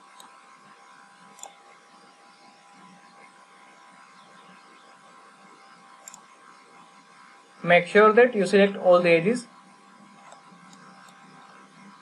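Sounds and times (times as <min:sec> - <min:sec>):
faint electrical hum and hiss: 0:00.0 - 0:12.0
computer mouse clicks: 0:00.1 - 0:00.4, 0:01.3 - 0:01.6, 0:06.0 - 0:06.3, 0:10.2 - 0:11.2.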